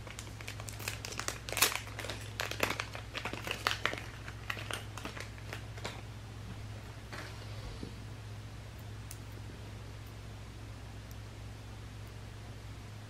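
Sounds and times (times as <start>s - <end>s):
plastic crinkling: 0.0s - 6.1s.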